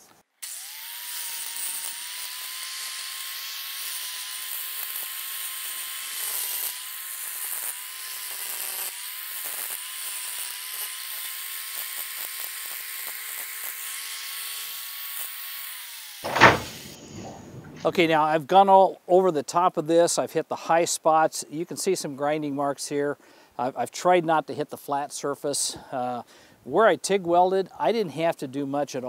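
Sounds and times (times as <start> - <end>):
angle grinder grinding steel: 0.4 - 17.1.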